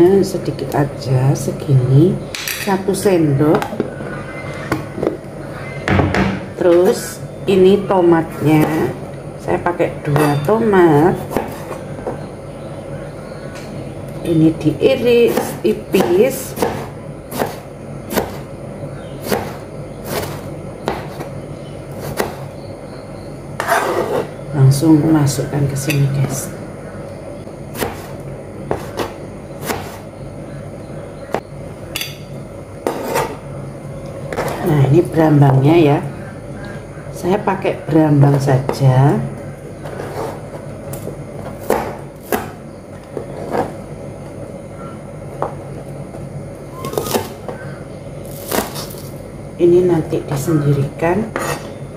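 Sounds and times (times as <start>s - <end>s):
knife chopping on cutting board: 11.2s - 11.8s, 15.3s - 18.4s, 19.2s - 21.3s, 22.0s - 22.4s, 27.8s - 28.1s, 28.7s - 30.0s, 41.6s - 42.6s.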